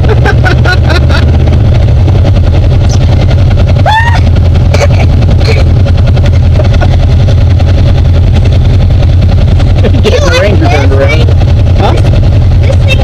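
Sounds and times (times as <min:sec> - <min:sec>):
vehicle engine idling: 0:00.0 - 0:13.0
short rising whoop: 0:03.8 - 0:04.3.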